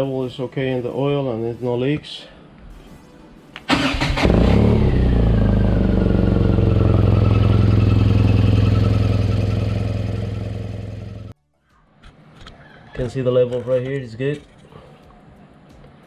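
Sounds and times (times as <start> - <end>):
motorcycle engine idling: 4.4 - 11.3.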